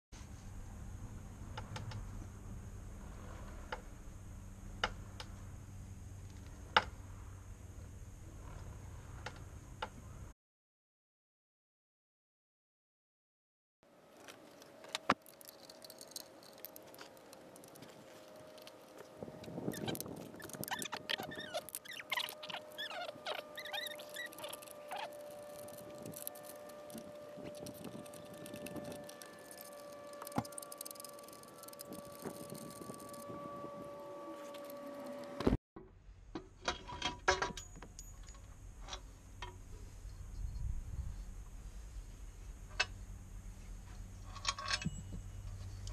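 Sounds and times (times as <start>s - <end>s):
faint low hum: 14.1s - 45.9s
socket wrench clicking and scraping: 15.0s - 18.7s, 19.7s - 33.2s
short high squeaks: 15.2s - 35.6s
sharp metallic ticks: 19.7s - 33.3s.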